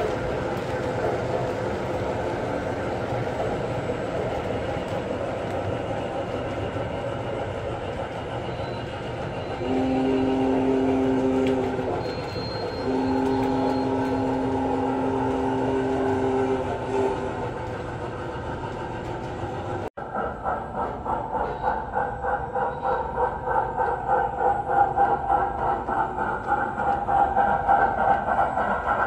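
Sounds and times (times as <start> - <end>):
model train rumbling on track: 0.0 - 29.0
steam whistle blasts: 9.4 - 17.5.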